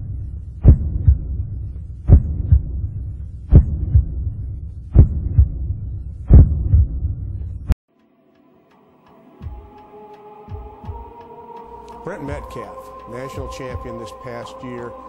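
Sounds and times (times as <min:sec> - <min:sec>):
heartbeat double thumps: 0:00.0 - 0:07.8, 0:10.5 - 0:11.2, 0:12.3 - 0:12.6, 0:13.4 - 0:14.1
low hum: 0:00.0 - 0:07.8, 0:08.4 - 0:15.0.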